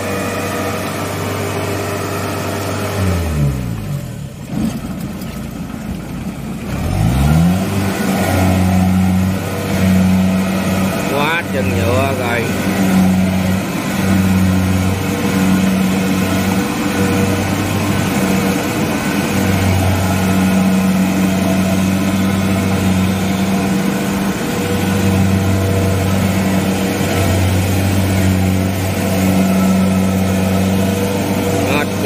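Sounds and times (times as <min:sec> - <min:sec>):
diesel engine running hard: 0:00.0 - 0:32.0.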